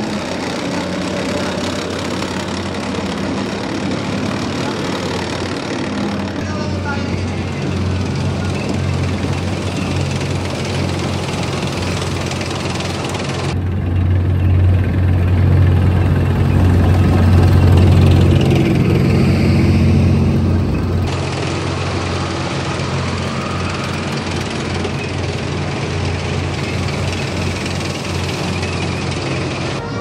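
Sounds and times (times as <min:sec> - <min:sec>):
tank engines humming: 0:00.0 - 0:30.0.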